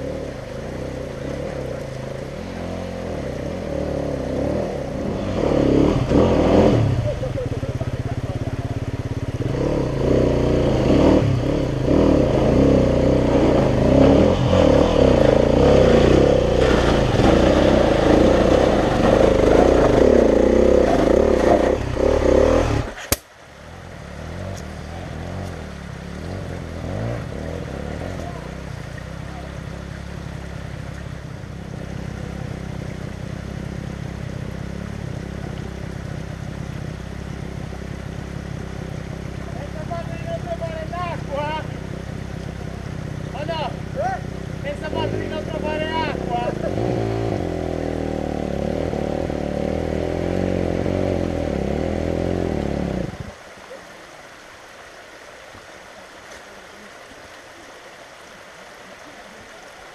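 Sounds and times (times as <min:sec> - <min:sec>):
dirt bike engine revving: 0:02.4 - 0:23.2, 0:43.2 - 0:53.3
engine running quietly: 0:22.8 - 0:53.8.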